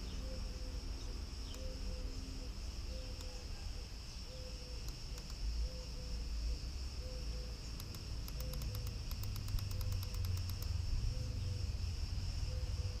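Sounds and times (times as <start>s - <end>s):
cicadas chirring: 0.0s - 13.0s.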